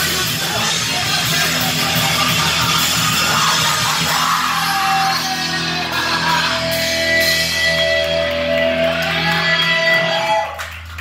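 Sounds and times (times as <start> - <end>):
distorted electric guitar: 0.0 - 11.0
live heavy rock band: 0.0 - 11.0.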